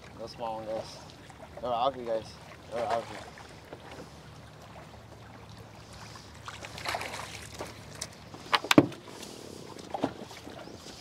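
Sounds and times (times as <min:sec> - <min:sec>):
light wind: 0:00.0 - 0:11.0
water around a boat: 0:00.0 - 0:11.0
sharp knocks on boat deck: 0:08.7 - 0:09.0.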